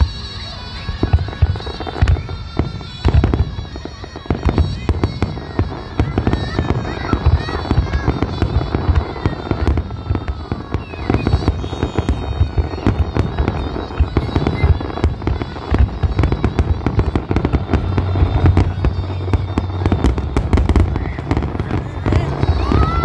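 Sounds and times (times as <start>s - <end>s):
fireworks bangs and crackling: 0.0s - 23.0s
music playing: 0.0s - 23.0s.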